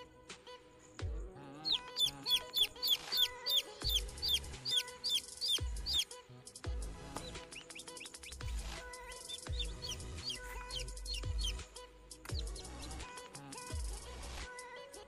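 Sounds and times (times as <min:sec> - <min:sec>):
chicks peeping: 0:01.6 - 0:06.1, 0:07.2 - 0:11.6, 0:12.2 - 0:13.0.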